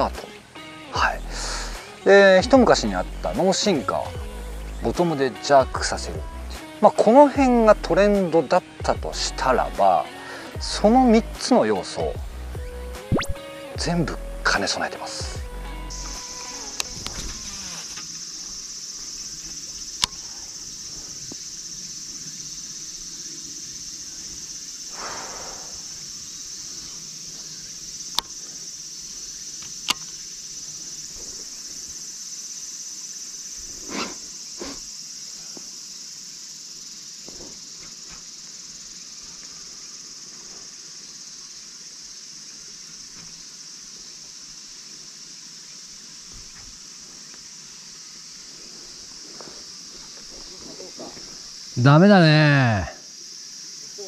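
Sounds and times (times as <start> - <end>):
insects droning: 0.0 - 54.0.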